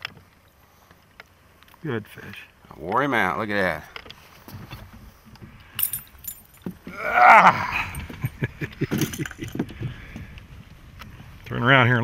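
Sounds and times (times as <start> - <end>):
person exclaiming: 6.9 - 8.1
fish and lure clicking and rattling: 8.0 - 10.1.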